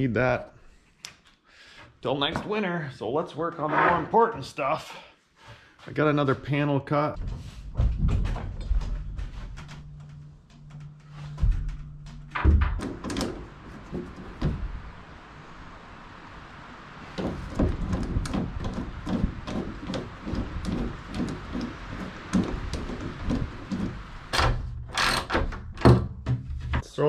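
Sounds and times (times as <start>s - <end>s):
short low hum: 7.2s - 17.0s.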